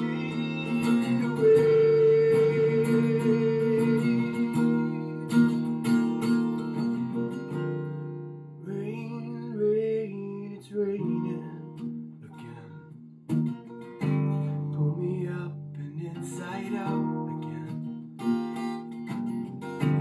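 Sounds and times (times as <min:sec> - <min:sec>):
acoustic guitar strumming chords: 0:00.0 - 0:20.0
man singing: 0:08.6 - 0:12.8, 0:14.6 - 0:17.9.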